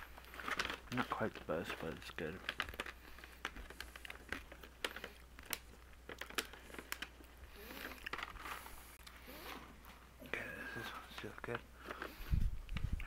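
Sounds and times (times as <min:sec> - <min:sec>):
plastic snack pouch crinkling: 0:00.0 - 0:09.3, 0:10.4 - 0:13.0
crunchy dried fruit being chewed: 0:00.0 - 0:13.0.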